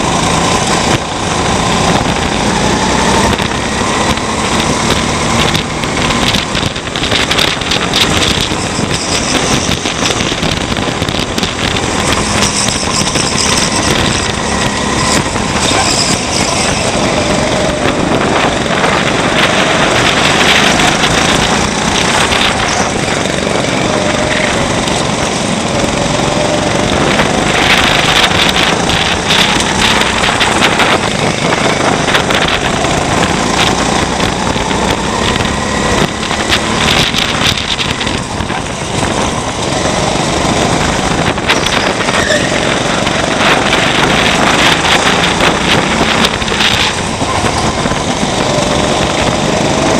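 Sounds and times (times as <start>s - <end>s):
heavy rushing noise: 0.0s - 49.9s
kart engine revving: 0.0s - 49.9s.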